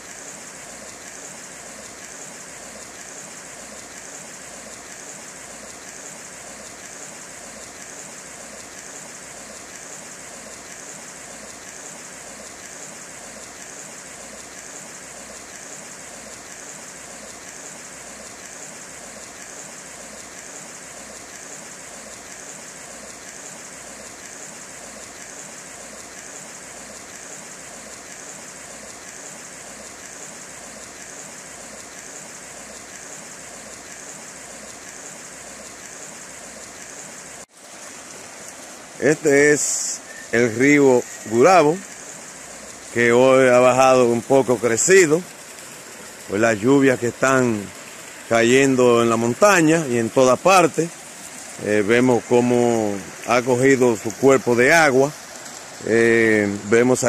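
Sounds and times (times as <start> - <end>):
flooded river rushing: 37.0 - 57.0.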